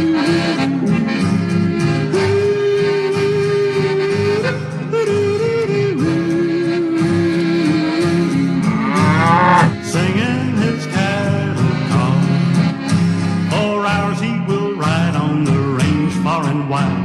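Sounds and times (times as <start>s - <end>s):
country song with guitar: 0.0s - 17.0s
cow mooing: 8.4s - 9.8s.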